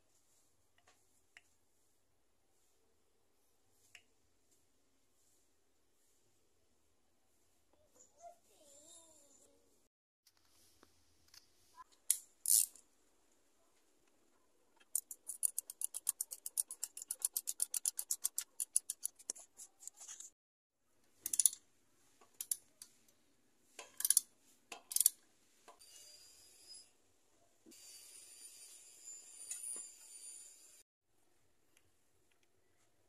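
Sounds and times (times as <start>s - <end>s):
ratchet wrench clicking: 12.4s - 12.8s, 15.0s - 19.1s, 21.2s - 21.6s, 24.0s - 24.2s, 24.9s - 25.1s.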